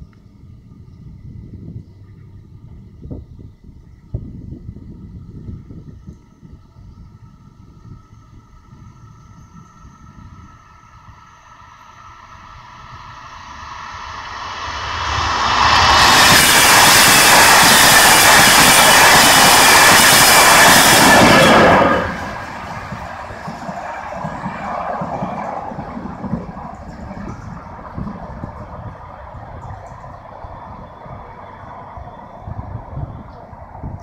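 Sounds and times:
train whine: 0:00.0 - 0:34.0
train wheels rolling on rails: 0:08.6 - 0:34.0.

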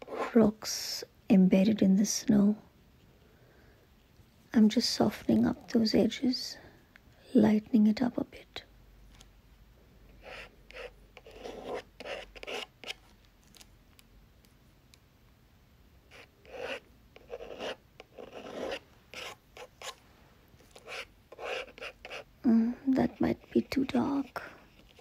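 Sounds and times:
card scraping paint on paper: 0:10.2 - 0:13.1, 0:16.1 - 0:20.0, 0:20.6 - 0:22.3, 0:23.0 - 0:25.0.

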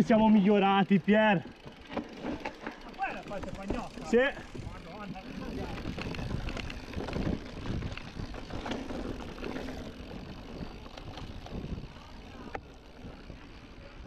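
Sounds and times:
bike rattling over bumps: 0:00.0 - 0:14.0
tyres on dirt and leaves: 0:01.4 - 0:14.0
wind rushing past camera: 0:03.7 - 0:14.0.

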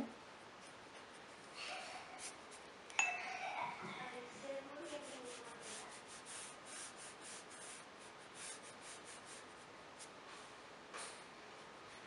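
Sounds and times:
paintbrush swishing on paper: 0:04.8 - 0:09.4.

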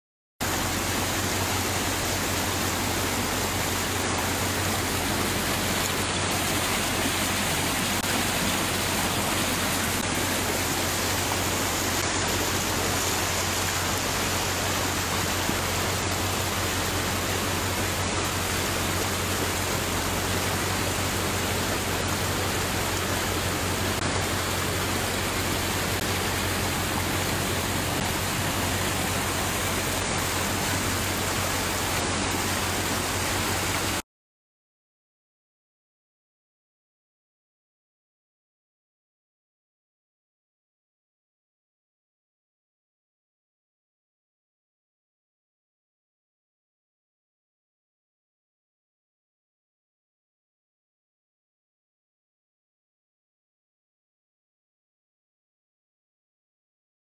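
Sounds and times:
floodwater rushing: 0:00.4 - 0:34.0.

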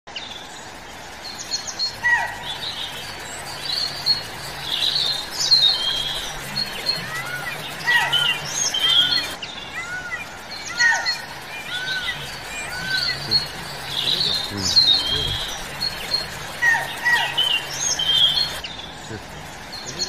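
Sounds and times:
forest birds chirping: 0:00.1 - 0:20.0.

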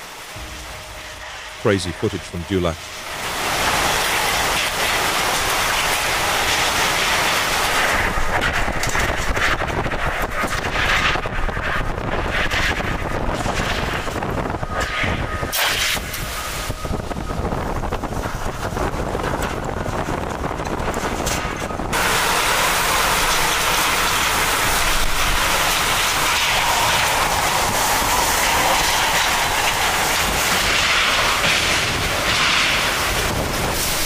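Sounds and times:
hiss of wind-driven rain: 0:00.0 - 0:34.0
wind rumbling on microphone: 0:00.0 - 0:34.0.

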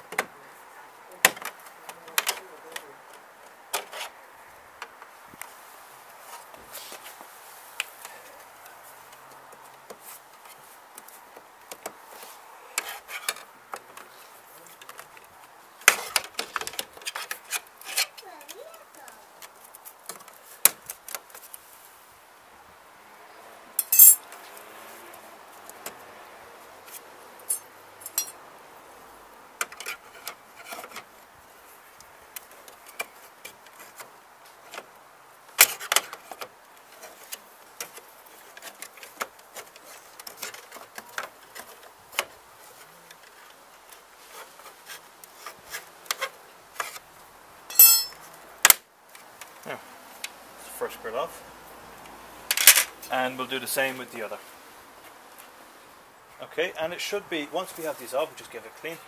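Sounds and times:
clicks and scrapes of plastic and metal: 0:01.3 - 0:04.2, 0:09.1 - 0:21.6, 0:29.6 - 0:31.1, 0:35.6 - 0:47.1.

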